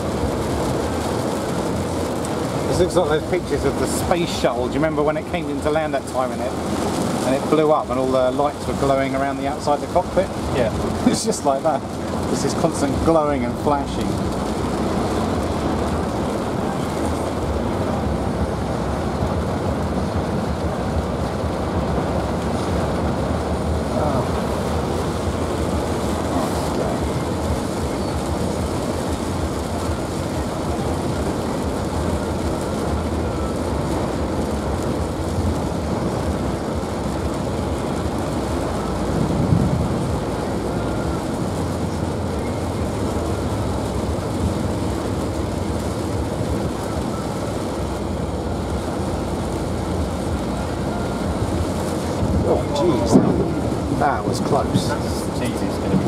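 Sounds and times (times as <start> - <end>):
heavy rain on car roof: 0.0 - 56.0
road and engine noise: 0.0 - 56.0
low rumble: 11.7 - 47.2.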